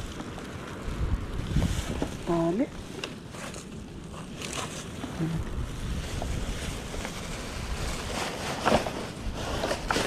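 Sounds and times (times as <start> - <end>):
wind rumbling on microphone: 0.0 - 10.0.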